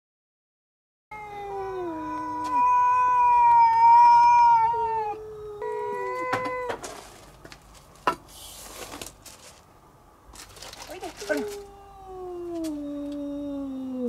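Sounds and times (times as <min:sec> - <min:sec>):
cats yowling: 0:01.1 - 0:07.0, 0:11.1 - 0:14.0
cat noisy rasp: 0:01.1 - 0:07.2, 0:11.1 - 0:14.0.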